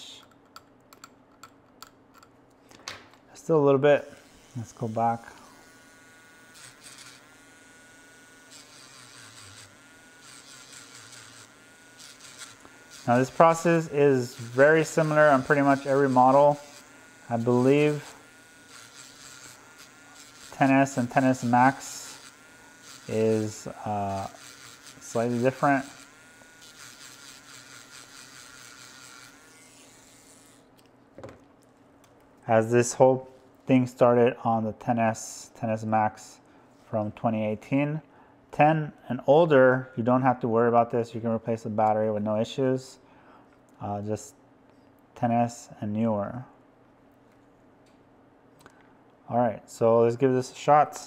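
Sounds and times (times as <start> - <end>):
rotary grinder whining: 4.1 - 30.7.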